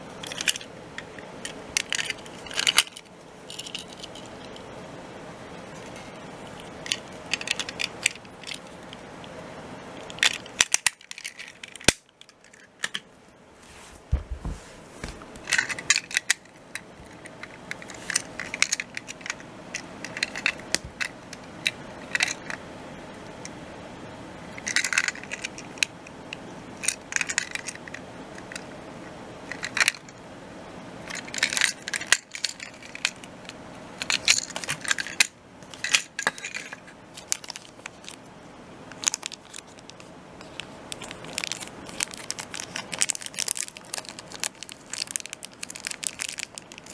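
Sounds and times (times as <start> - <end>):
plastic toy train clattering: 0.2 - 4.6, 5.8 - 9.0, 10.0 - 13.0, 15.4 - 19.4, 20.0 - 22.6, 24.6 - 25.9, 26.8 - 28.6, 29.5 - 30.1, 31.1 - 33.3, 34.0 - 38.2, 38.9 - 46.9.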